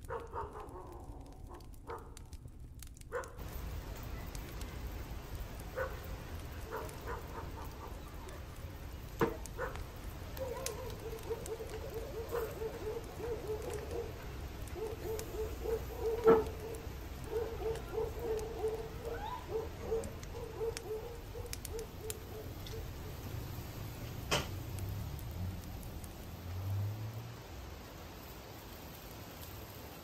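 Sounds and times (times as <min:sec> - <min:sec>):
sausages sizzling on a grill: 0:00.0 - 0:30.0
sharp crackles: 0:00.0 - 0:30.0
animal calling: 0:10.4 - 0:22.9.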